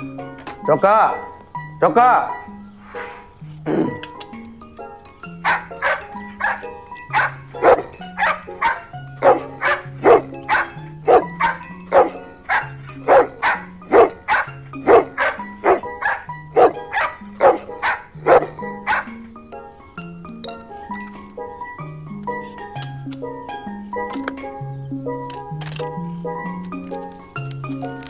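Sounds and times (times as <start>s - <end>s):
background music: 0.0s - 28.0s
dog barking: 5.4s - 19.2s.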